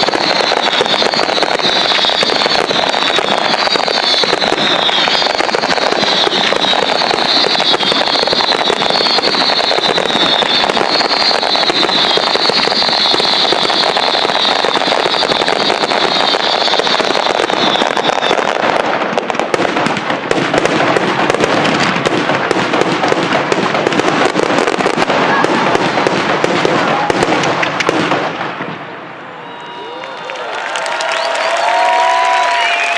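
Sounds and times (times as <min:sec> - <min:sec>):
fireworks bursting and crackling: 0:00.0 - 0:32.9.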